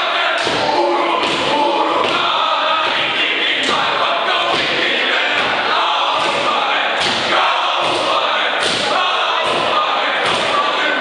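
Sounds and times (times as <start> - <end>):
men chanting and shouting: 0.0 - 11.0.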